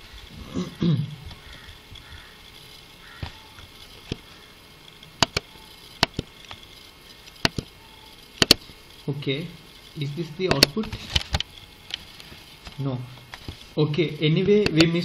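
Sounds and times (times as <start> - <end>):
computer mouse clicking: 1.3 - 8.8, 10.5 - 13.7, 14.4 - 15.0.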